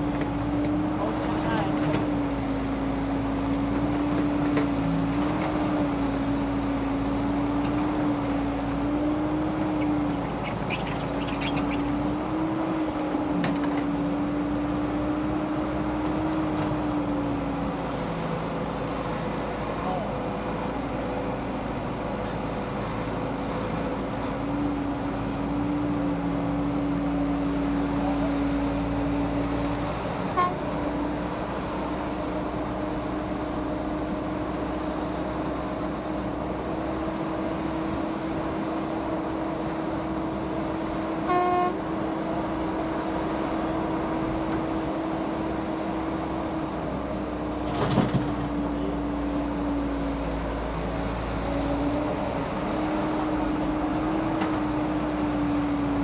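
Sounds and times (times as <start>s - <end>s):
excavator diesel engine running: 0.0s - 56.0s
short horn toot: 30.3s - 30.7s, 41.2s - 41.8s.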